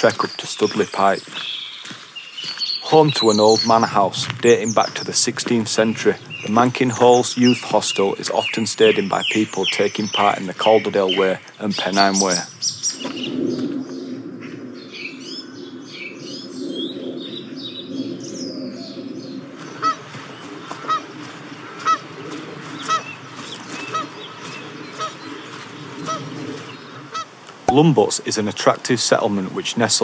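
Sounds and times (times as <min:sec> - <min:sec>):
songbird singing: 0:00.0 - 0:30.0
geese honking: 0:19.6 - 0:27.4.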